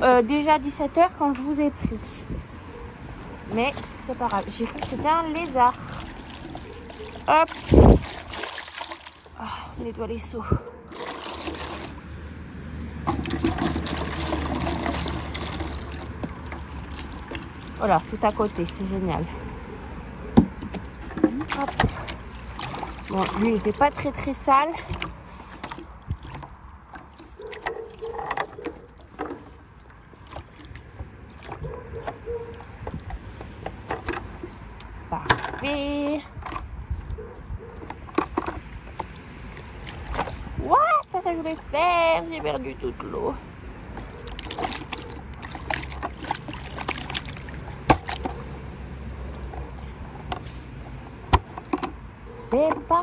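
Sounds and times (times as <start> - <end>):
water sloshing in a bucket: 1.6 - 53.0
bucket knocks and scrapes: 3.5 - 9.2, 13.0 - 18.9, 20.3 - 29.6, 37.8 - 40.6
bucket handle knocks and clicks: 20.4 - 22.0.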